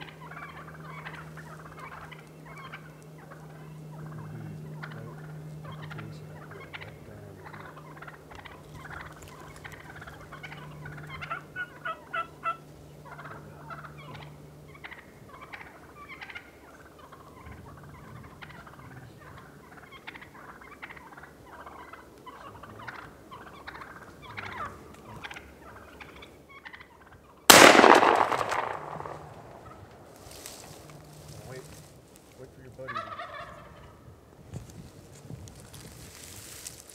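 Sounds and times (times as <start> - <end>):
wild turkeys clucking and calling: 0.0 - 36.9
shotgun blast: 27.5 - 30.2.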